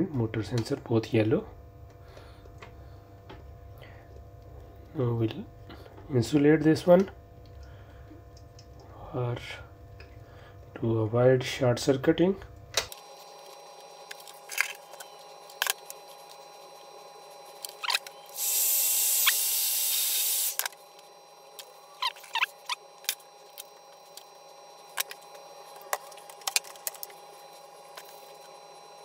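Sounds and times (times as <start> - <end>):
wires and connectors clicking: 24.9 - 27.2.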